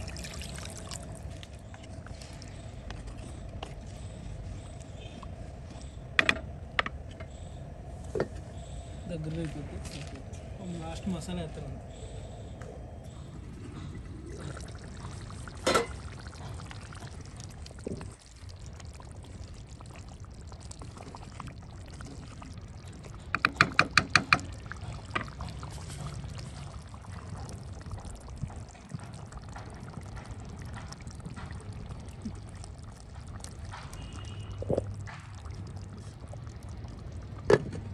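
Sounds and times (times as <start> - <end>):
liquid bubbling in pot: 0.0 - 37.9.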